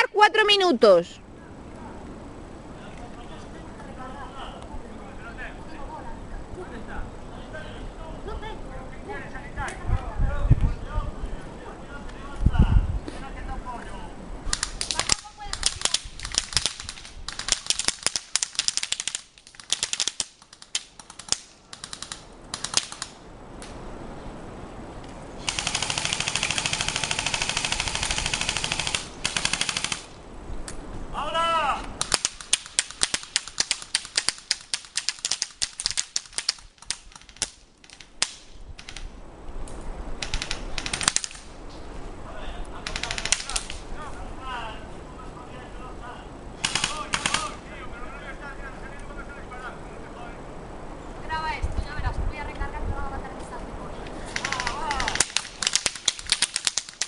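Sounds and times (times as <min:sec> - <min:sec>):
airsoft gun full-auto burst: 0:25.4 - 0:30.2, 0:40.2 - 0:41.4, 0:42.8 - 0:43.8, 0:46.6 - 0:47.6, 0:54.3 - 0:57.0.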